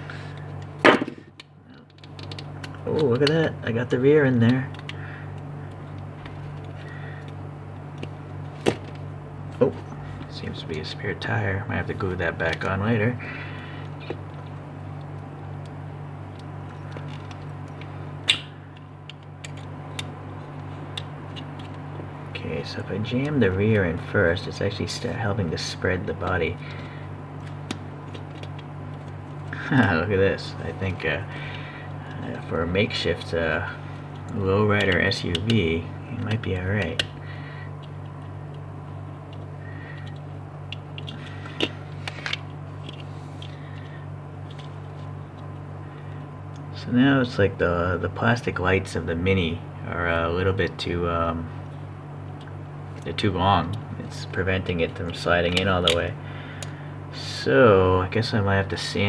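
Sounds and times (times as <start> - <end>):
steady low hum: 0.0 - 59.0
sharp plastic snap: 18.2 - 18.5.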